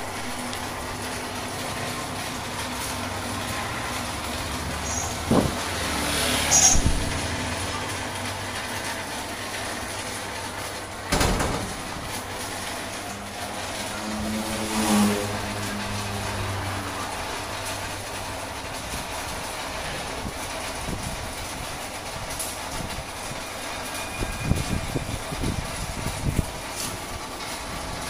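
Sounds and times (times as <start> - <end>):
low mechanical hum: 0.0 - 28.0
brief high squeak: 4.8 - 5.2, 6.5 - 7.0.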